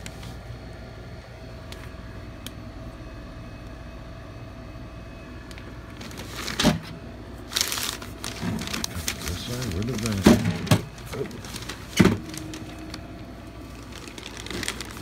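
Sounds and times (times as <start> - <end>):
steady low hum: 0.0 - 15.0
newspaper rustle: 6.0 - 6.8, 7.4 - 15.0.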